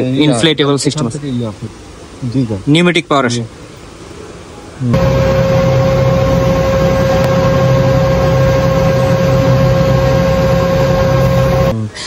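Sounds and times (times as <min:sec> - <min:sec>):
high whine: 0:04.9 - 0:11.8
jet engine hum: 0:05.0 - 0:11.7.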